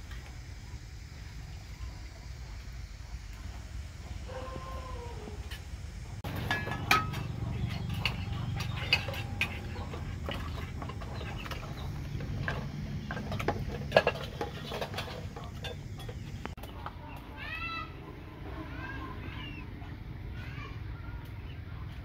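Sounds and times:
metal cookware clattering: 6.2 - 16.6.

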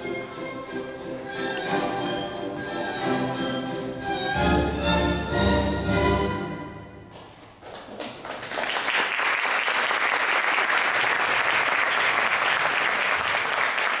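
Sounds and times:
audience applauding: 7.6 - 14.0.

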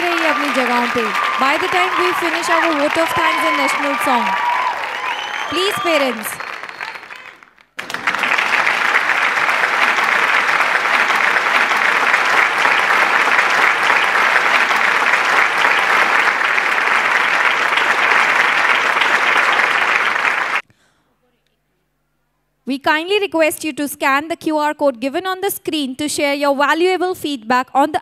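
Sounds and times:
audience applauding: 0.0 - 20.6.

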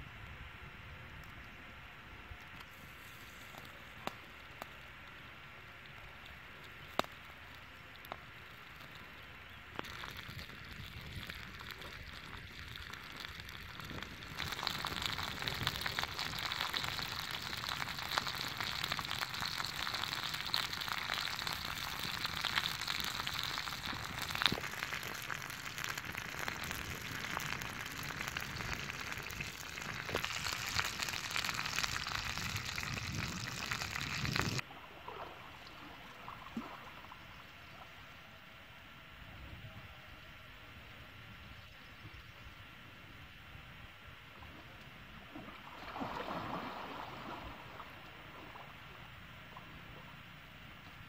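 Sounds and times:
outdoor background: 0.0 - 51.0
fire crackling: 2.4 - 34.6
meat sizzling on hot rock: 6.8 - 34.6.

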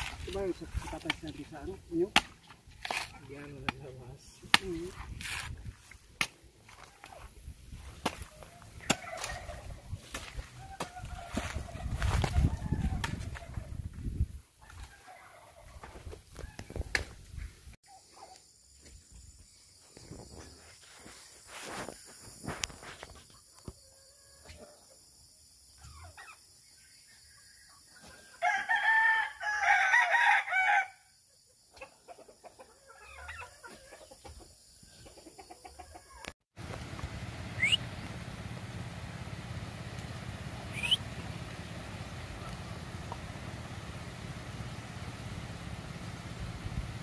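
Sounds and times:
chickens scratching and pecking: 6.7 - 13.8
rooster crowing: 10.4 - 13.6, 28.4 - 31.1
chickens clucking: 31.7 - 36.3
steady low hum: 36.6 - 47.0
short rising chirps: 37.6 - 37.8, 40.7 - 41.0.

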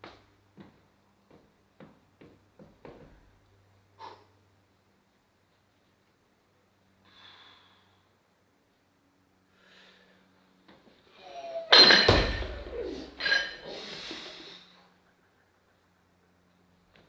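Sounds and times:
barbell plates clattering: 11.7 - 13.9
sharp breaths: 13.6 - 15.0.

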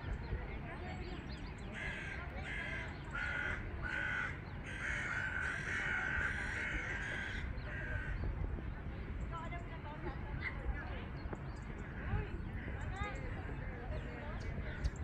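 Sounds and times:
bird calling: 1.0 - 8.3.

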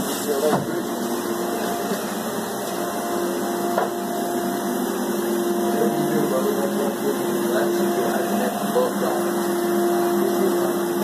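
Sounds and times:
motor hum: 0.4 - 11.0.

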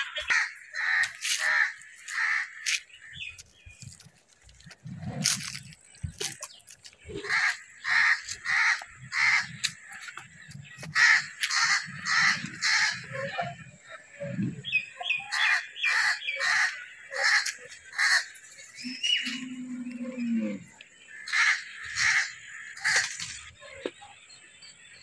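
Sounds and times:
high bird chirps: 5.6 - 25.0
bird calling harshly: 6.2 - 13.6.

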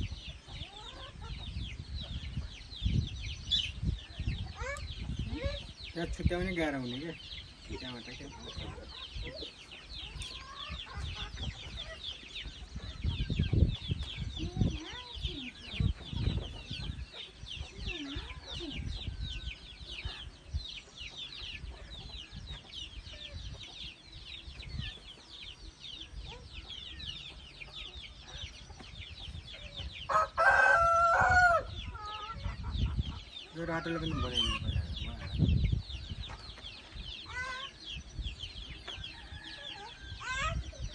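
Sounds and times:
chickens clucking: 0.0 - 40.9
chorus of high chirps: 0.0 - 40.9
rooster crowing: 30.1 - 31.7, 39.0 - 40.3.

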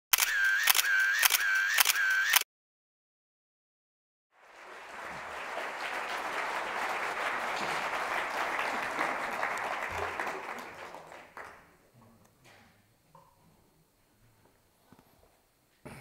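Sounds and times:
audience applauding: 4.3 - 11.8.

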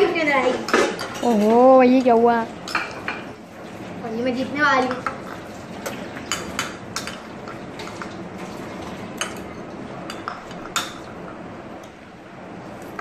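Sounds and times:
cutlery clinking on bowls: 0.4 - 3.4, 4.8 - 11.1.

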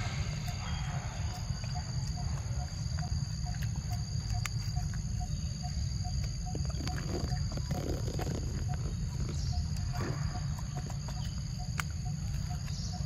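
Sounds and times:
low rumble: 0.0 - 3.9
high insect drone: 0.0 - 13.0.

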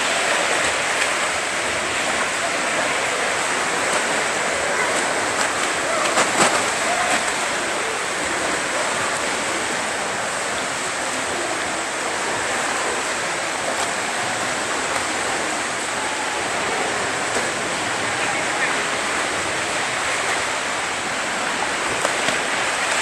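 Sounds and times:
swimming pool water splashing: 0.0 - 23.0.

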